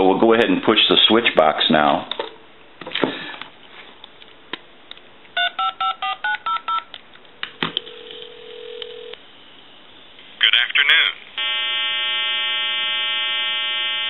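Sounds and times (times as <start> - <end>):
touch-tone dialing tones: 5.4 - 6.9
low telephone line tone: 7.8 - 9.2, 11.4 - 14.0.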